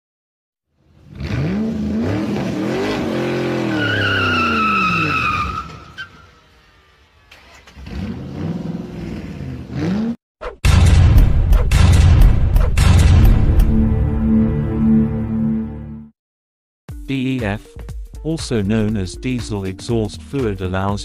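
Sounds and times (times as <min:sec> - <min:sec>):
sports car engine revving: 0:01.0 - 0:05.4, 0:06.4 - 0:10.2
tyre squeal: 0:03.4 - 0:06.5.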